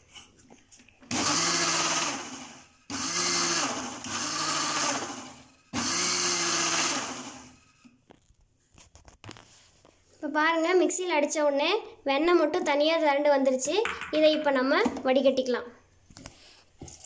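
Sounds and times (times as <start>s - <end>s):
mixer grinder pulses: 1.1s - 7.9s.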